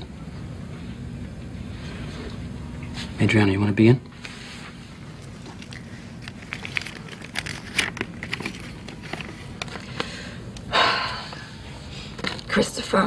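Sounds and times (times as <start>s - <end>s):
steady low hum: 0.0s - 13.0s
paper crackling and rustling: 5.1s - 10.2s.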